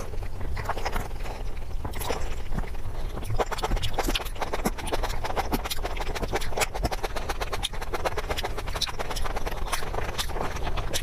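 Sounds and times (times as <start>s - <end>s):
chewing soft food: 0.0s - 11.0s.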